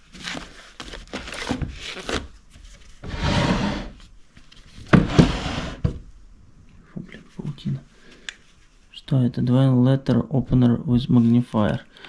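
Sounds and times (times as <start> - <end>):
papers and books rustling: 0.0 - 3.1
wooden drawer sliding: 3.0 - 4.0, 4.9 - 6.0.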